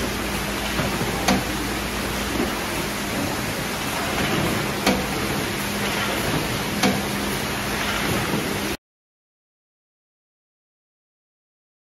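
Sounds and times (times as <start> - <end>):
conveyors hissing and humming: 0.0 - 8.8.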